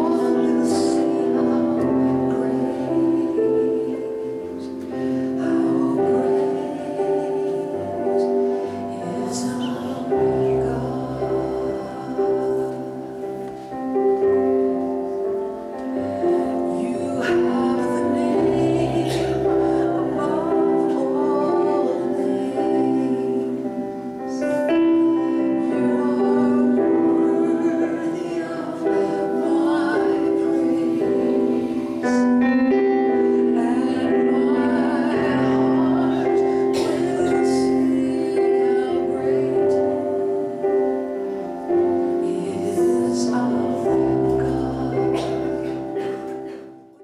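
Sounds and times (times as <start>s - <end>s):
woman singing: 0.0s - 13.4s, 15.6s - 47.0s
electronic keyboard chords: 0.0s - 47.0s.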